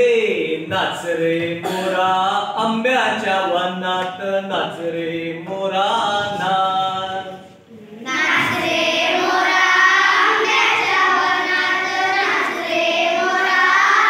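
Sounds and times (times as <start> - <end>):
children singing in unison: 8.0 - 14.0.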